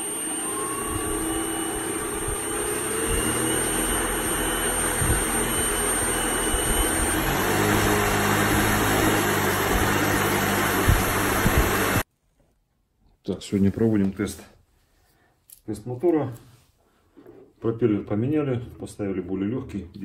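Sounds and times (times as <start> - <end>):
electric motor whining: 0.0 - 12.0.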